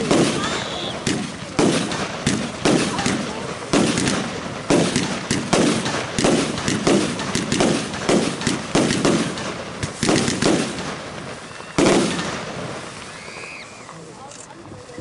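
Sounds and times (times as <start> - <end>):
fireworks bangs with echo: 0.0 - 13.9.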